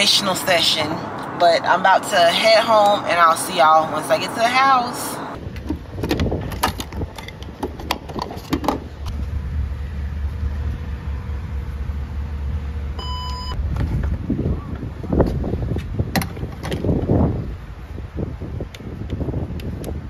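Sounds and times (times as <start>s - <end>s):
low steady rumble: 8.7s - 20.0s
fuel pump electronic beep: 13.0s - 13.6s.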